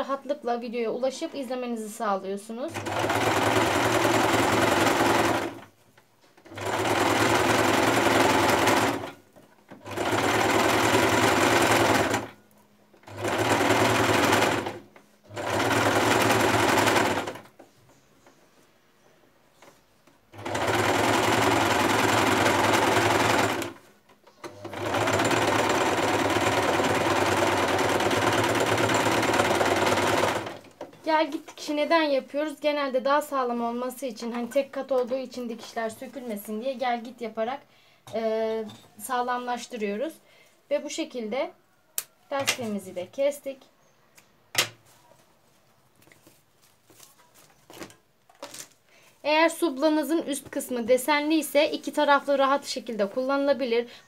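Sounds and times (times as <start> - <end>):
sewing machine stitching: 2.7 - 5.7, 6.4 - 12.4, 13.0 - 17.6, 20.3 - 31.2.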